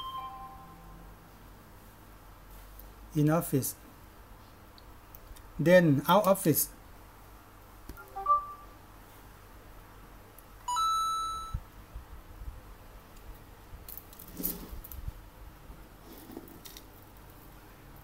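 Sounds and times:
short electronic beep: 0:00.0 - 0:00.8, 0:08.0 - 0:08.8.

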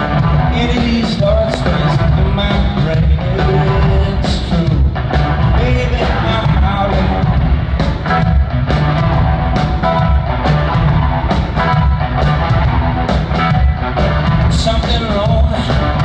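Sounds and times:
bass: 0:00.0 - 0:16.0
electric guitar: 0:00.0 - 0:16.0
steady drum beat: 0:00.0 - 0:16.0.

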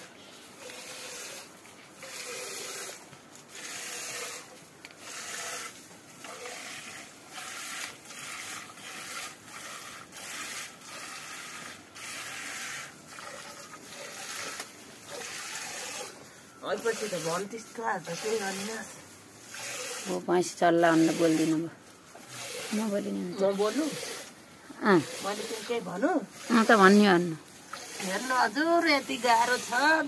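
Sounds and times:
milk squirting into metal pail: 0:06.2 - 0:27.0.

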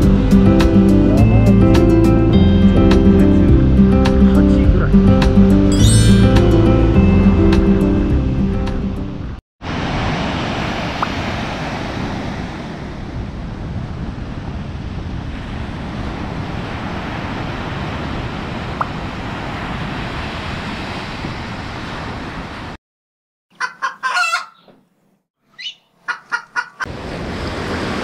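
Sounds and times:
surf on sandy shore: 0:00.0 - 0:04.6, 0:05.3 - 0:22.8, 0:26.8 - 0:28.0
wind buffeting microphone: 0:09.2 - 0:22.8.

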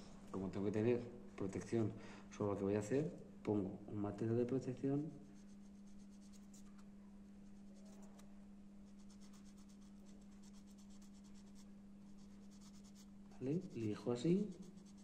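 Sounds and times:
steady low hum: 0:00.0 - 0:15.0
nail file scratching: 0:05.4 - 0:06.8, 0:08.9 - 0:15.0.

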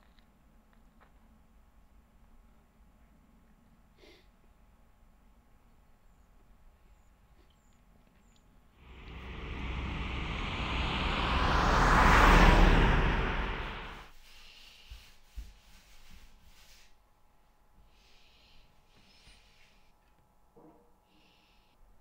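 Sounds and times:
broad rushing whoosh: 0:08.8 - 0:14.1.

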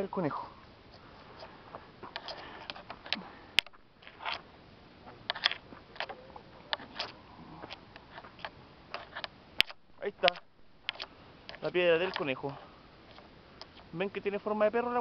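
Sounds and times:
sharp click: 0:03.1 - 0:04.4, 0:08.4 - 0:12.3.

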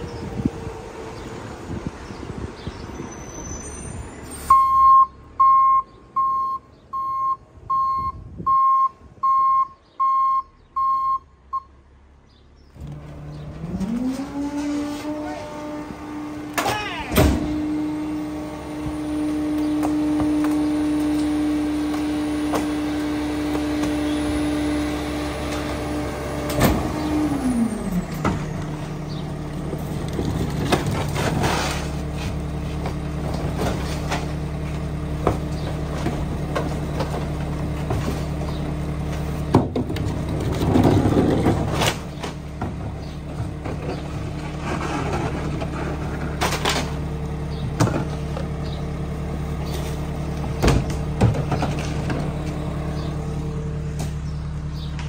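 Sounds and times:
truck back-up alarm beeping: 0:03.4 - 0:11.8
truck engine revving: 0:12.8 - 0:55.0.

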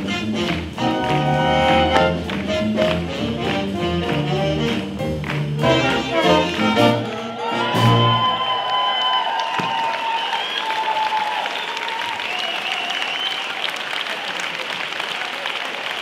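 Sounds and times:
swing jazz band playing: 0:00.0 - 0:08.4.

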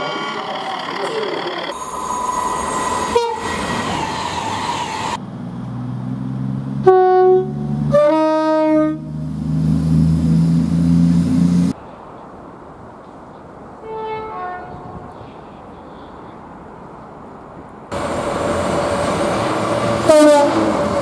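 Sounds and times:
electric train rushing past: 0:00.0 - 0:11.8, 0:17.9 - 0:21.0
diesel train engine drone: 0:00.0 - 0:13.2, 0:17.9 - 0:21.0
two-tone train horn blasts: 0:03.1 - 0:03.5, 0:06.8 - 0:09.1, 0:13.8 - 0:15.0, 0:20.0 - 0:20.7.

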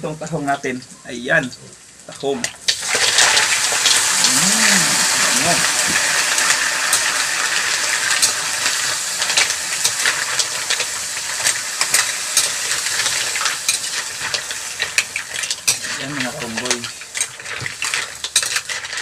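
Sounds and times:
mussels sizzling in oil: 0:01.4 - 0:19.0
metal spatula scraping shells: 0:08.1 - 0:19.0.

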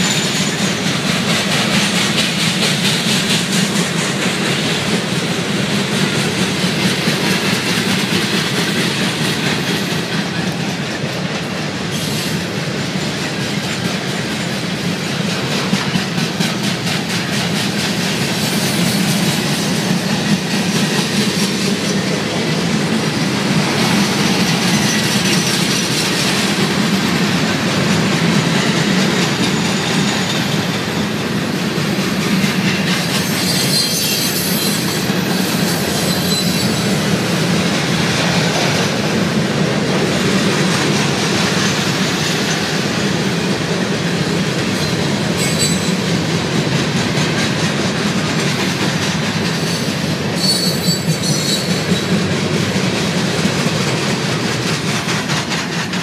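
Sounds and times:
train wheels on rails: 0:00.0 - 0:56.0
wheel squeals: 0:32.9 - 0:37.1, 0:44.7 - 0:46.0, 0:49.6 - 0:52.1.

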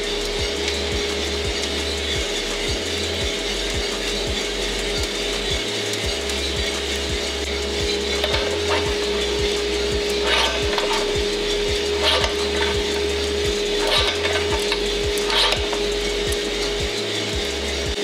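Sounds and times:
coffee beans tumbling and rattling: 0:00.0 - 0:18.0
roaster motor hum: 0:00.0 - 0:18.0
short scraping rattles: 0:06.2 - 0:17.9.

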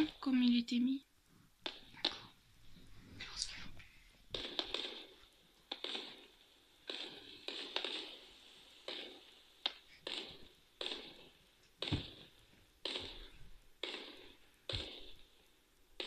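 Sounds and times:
fireworks banging: 0:00.0 - 0:00.6, 0:01.6 - 0:02.4, 0:04.3 - 0:16.0
deep firework thud: 0:11.8 - 0:15.2.

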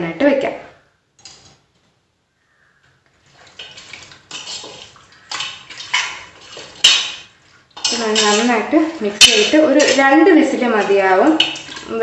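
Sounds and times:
hand squelching raw chicken: 0:03.2 - 0:12.0.

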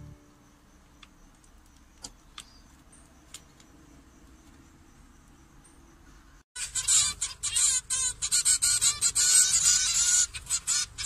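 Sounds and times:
faint high finch calls: 0:06.6 - 0:11.0
rapid nasal finch calling: 0:06.6 - 0:11.0.

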